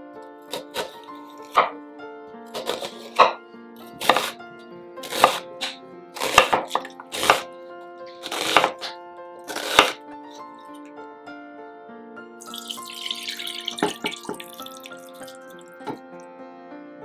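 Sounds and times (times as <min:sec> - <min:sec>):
soft background music: 0:00.0 - 0:17.0
knife chopping onion on board: 0:00.5 - 0:01.8, 0:02.5 - 0:04.4, 0:05.0 - 0:07.5, 0:08.2 - 0:10.0.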